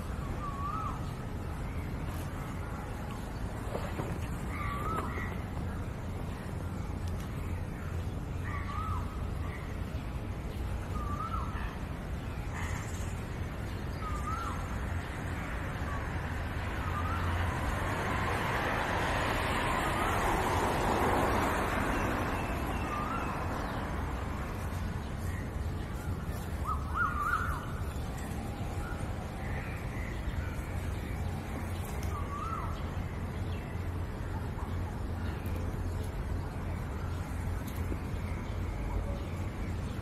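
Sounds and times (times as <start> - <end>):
bird calling: 3.3 - 5.9, 24.8 - 33.0.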